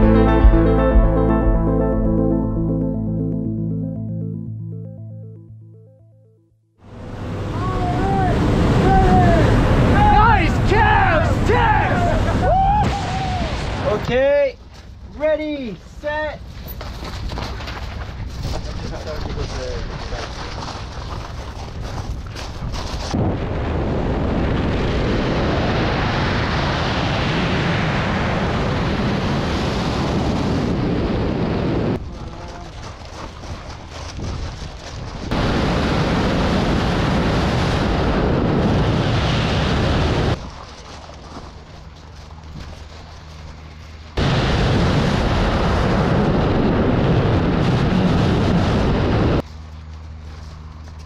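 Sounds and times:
wind rushing over microphone: 21.6 - 32.6, 33.5 - 40.5, 44.2 - 49.4.

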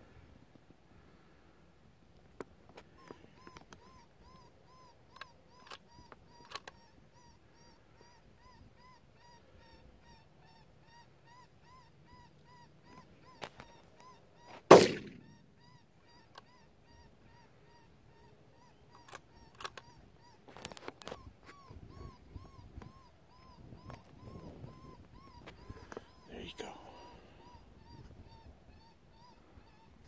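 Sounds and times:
rifle shot: 14.7 - 15.2.

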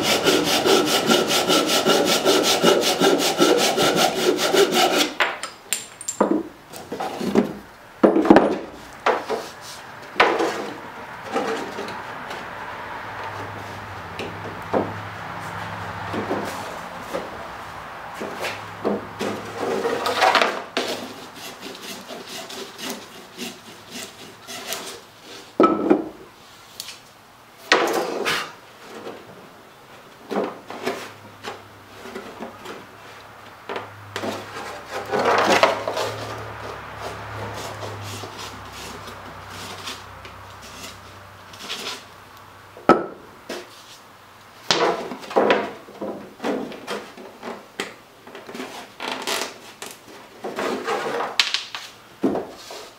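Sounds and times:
block plane shaving wood: 0.0 - 5.2, 19.2 - 25.4, 34.2 - 41.0
wood rubbing on wood: 0.0 - 5.2, 18.2 - 25.5, 34.2 - 42.1.

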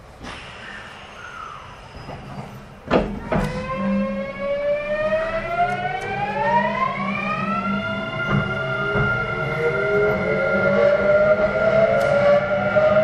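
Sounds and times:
knocks: 2.8 - 3.7, 8.2 - 9.3
train motor whine rising in pitch: 3.2 - 13.0.

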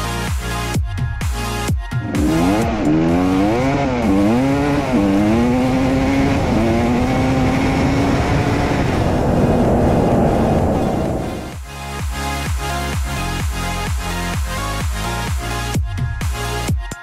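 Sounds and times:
two-stroke motorcycle engine revving: 2.0 - 11.6.

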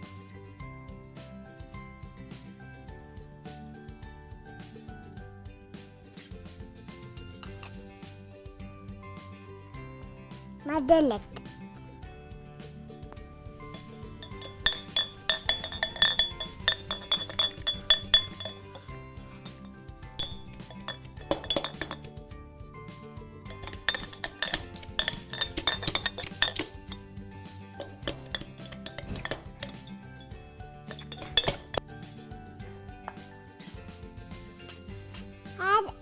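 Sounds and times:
background music: 0.0 - 36.0
muddler clinking against glass: 13.6 - 22.2, 23.4 - 32.0.

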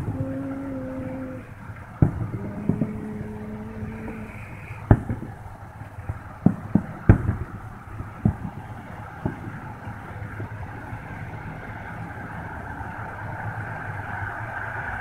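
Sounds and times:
steady low drone: 0.0 - 8.1
distant fireworks bangs: 0.0 - 14.2
background rumble: 0.0 - 15.0.

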